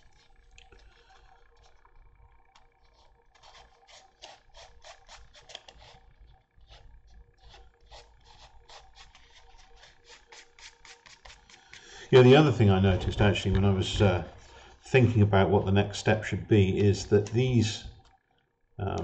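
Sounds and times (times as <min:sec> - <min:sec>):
fingertips rubbing foam: 0:02.8 - 0:15.0.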